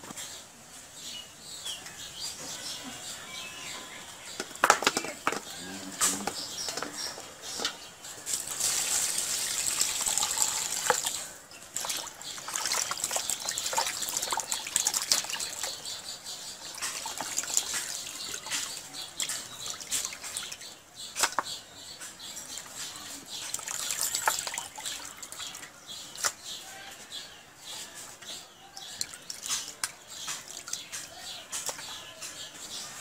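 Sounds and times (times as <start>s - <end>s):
hands splashing water in bucket: 8.3s - 15.8s, 16.7s - 21.5s, 23.4s - 26.4s.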